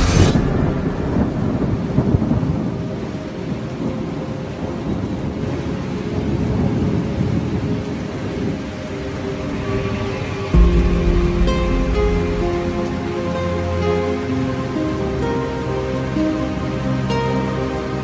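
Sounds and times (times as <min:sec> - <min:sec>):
thunder rumbling: 0:00.0 - 0:14.2
rain: 0:00.0 - 0:18.0.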